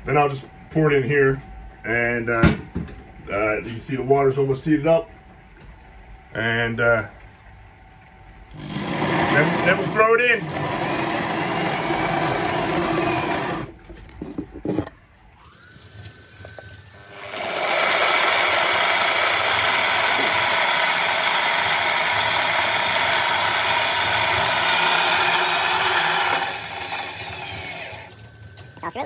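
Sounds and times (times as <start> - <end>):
drill driving grain mill: 8.5 - 13.8, 15.4 - 28.4.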